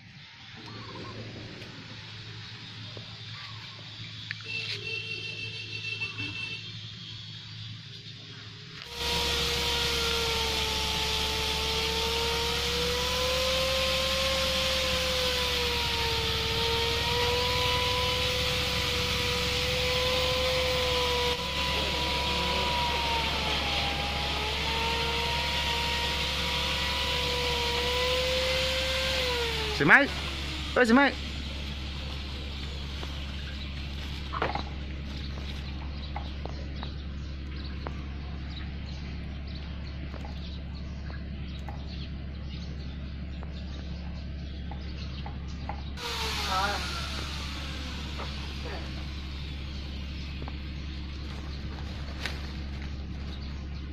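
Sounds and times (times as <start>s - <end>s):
engine drone: 0.0s - 53.9s
low hum: 8.8s - 53.9s
dry leaves crackling and rustling: 31.3s - 35.8s, 50.4s - 53.9s.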